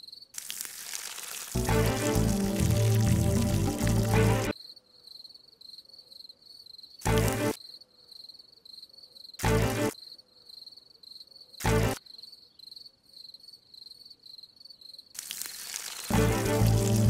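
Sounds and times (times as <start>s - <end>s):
crickets chirping: 10.0s - 16.1s.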